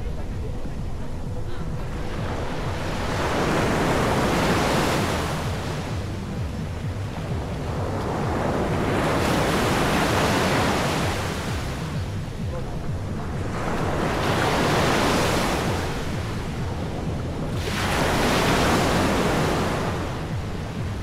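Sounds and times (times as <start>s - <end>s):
wind rumble on microphone: 0.0s - 21.0s
sea waves washing onto beach: 1.6s - 21.0s.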